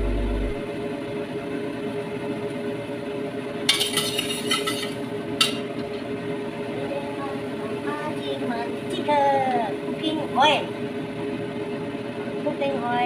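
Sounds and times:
metal spatula clinking on wok: 3.7 - 5.6.

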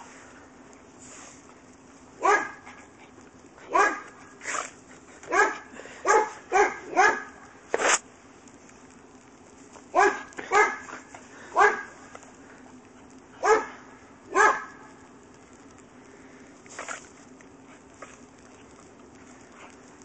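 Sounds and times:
dog barking: 2.2 - 2.7, 3.7 - 4.2, 5.3 - 7.4, 9.9 - 10.9, 11.5 - 12.0, 13.4 - 14.8.

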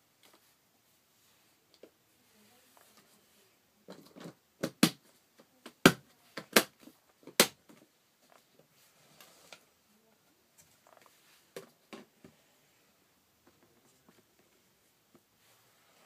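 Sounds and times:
faint scraping and rustling: 0.2 - 4.4, 7.8 - 16.0.

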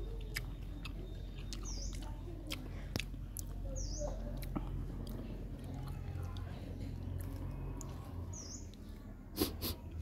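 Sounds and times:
small bird chirping: 0.0 - 9.5
crisp fruit being chewed: 0.0 - 9.7.

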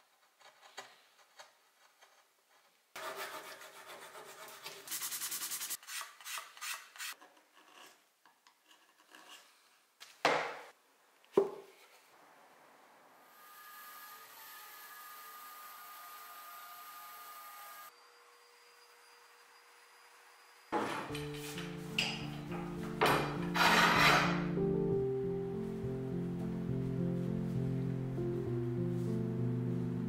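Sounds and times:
hand tools scraping hardwood: 5.7 - 9.8, 20.8 - 24.6.

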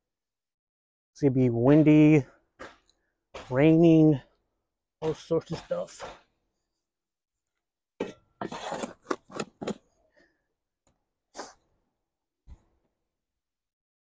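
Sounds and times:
shovel scraping soil: 8.0 - 10.0, 11.4 - 11.6.

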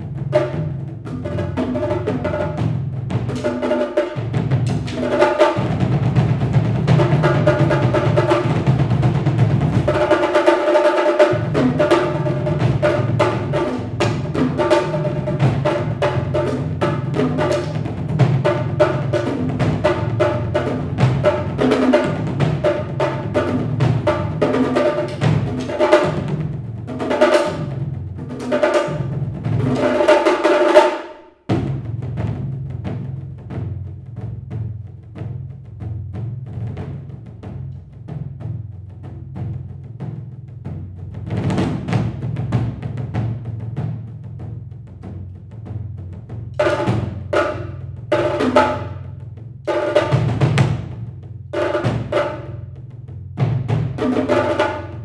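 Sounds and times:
drums played with sticks: 0.0 - 55.0.

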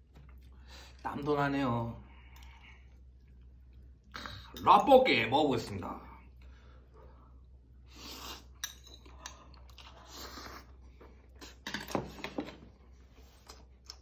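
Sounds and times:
slurping noodles: 9.7 - 11.6.

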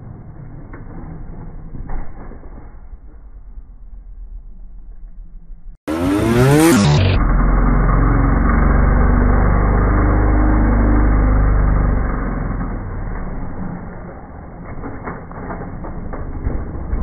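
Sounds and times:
motorcycle engine revving: 5.9 - 17.0.

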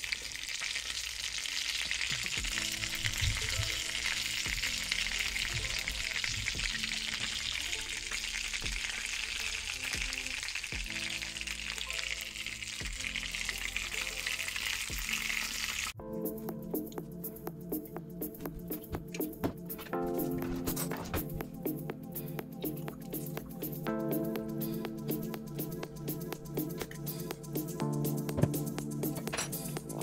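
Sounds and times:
meat sizzling in a frying pan: 0.0 - 16.0
soft background music: 2.4 - 30.0.

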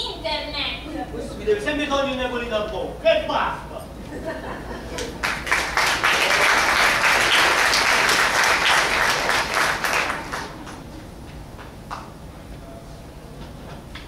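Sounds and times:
audience applauding: 4.9 - 10.9.

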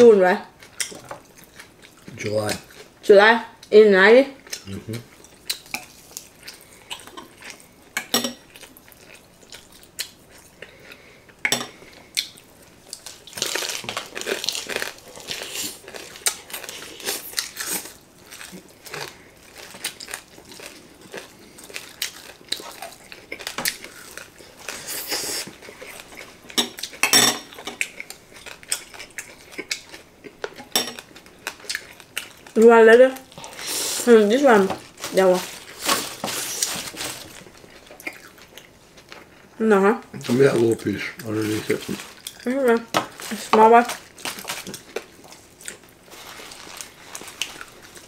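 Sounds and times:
chewing crisp food: 4.4 - 7.8, 8.4 - 34.0, 34.8 - 39.5, 40.2 - 48.0.

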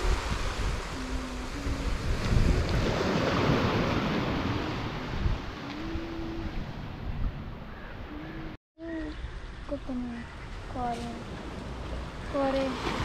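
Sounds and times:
ocean surf washing on beach: 0.0 - 7.1, 12.4 - 13.0
wind buffeting microphone: 0.0 - 13.0.

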